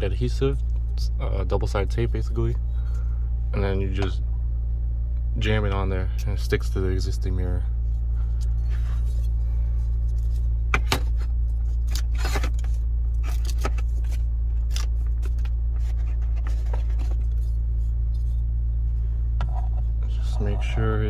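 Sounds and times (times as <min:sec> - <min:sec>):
low hum in car cabin: 0:00.0 - 0:21.0
hands handling cardboard box: 0:10.1 - 0:18.3.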